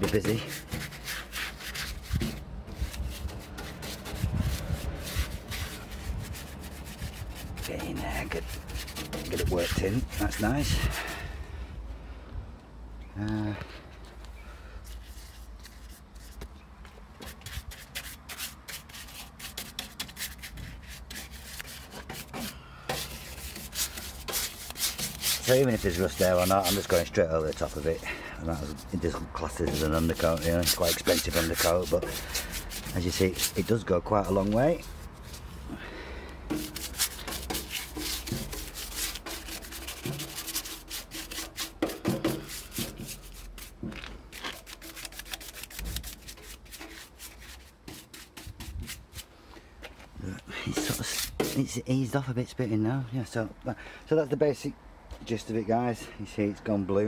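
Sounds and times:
paintbrush scrubbing metal: 0.0s - 11.1s, 17.2s - 35.6s, 36.5s - 49.3s, 50.6s - 51.8s.

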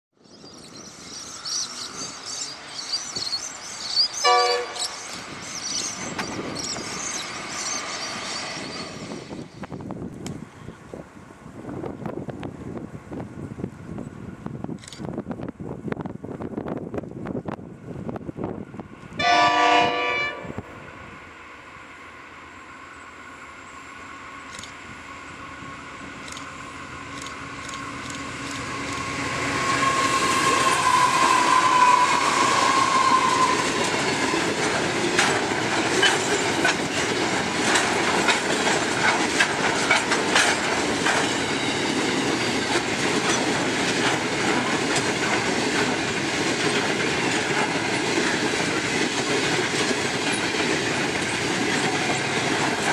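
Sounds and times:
locomotive rumble: 0.5s - 52.9s
wheels clickety-clack on rails: 0.6s - 11.0s, 26.1s - 29.9s, 30.8s - 52.9s
train horn blast: 4.2s - 4.9s, 19.2s - 20.7s, 29.0s - 34.0s.

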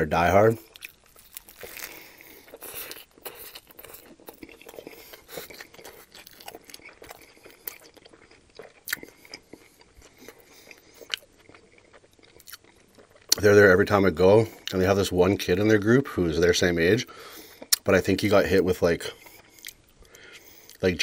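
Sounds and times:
crisp crunches of chewing: 0.5s - 13.8s, 17.2s - 18.0s, 19.0s - 20.9s.

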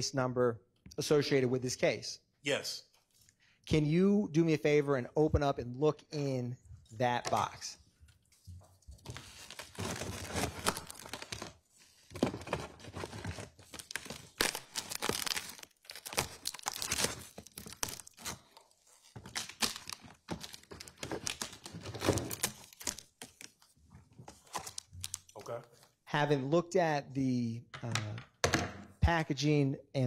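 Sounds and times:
packaging crinkling and tearing: 9.0s - 25.5s.

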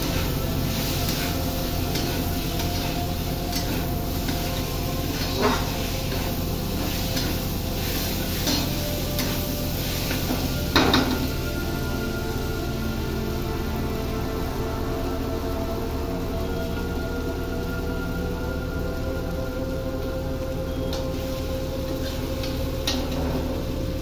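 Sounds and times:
metal spatula scraping metal pan: 0.0s - 11.3s
spices sizzling: 0.0s - 24.0s.

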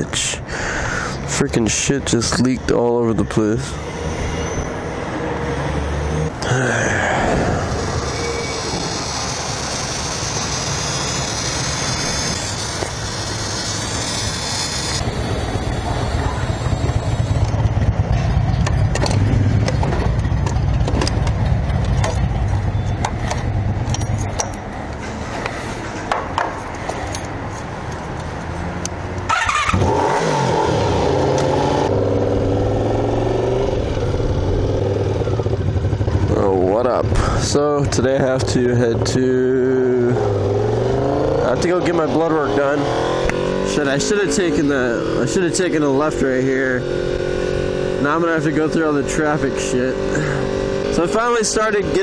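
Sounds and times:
motorcycle engine running: 7.5s - 24.7s, 30.8s - 42.3s
clicks and clatter: 18.2s - 22.3s.

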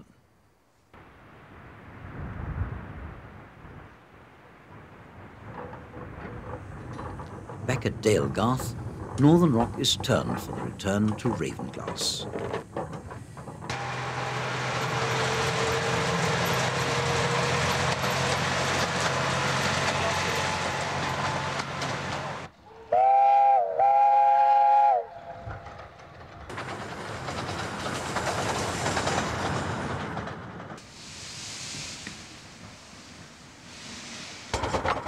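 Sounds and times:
steam locomotive running hiss: 6.7s - 25.9s, 26.5s - 35.0s
steam whistle blasts: 22.9s - 25.5s.

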